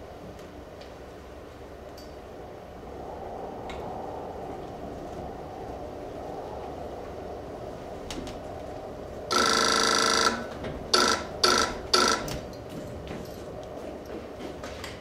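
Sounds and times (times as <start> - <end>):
electric buzzer ringing: 9.3 - 12.4.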